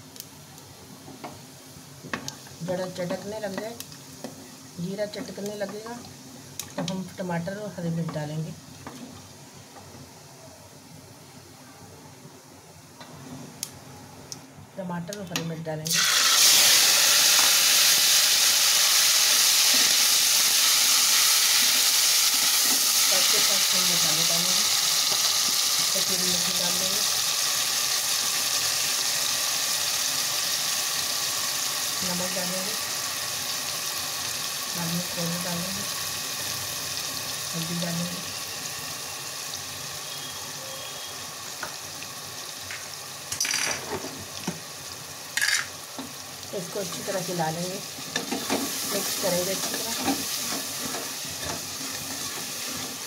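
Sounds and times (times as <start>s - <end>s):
vegetables sizzling in oil: 0.0s - 9.7s, 15.2s - 53.0s.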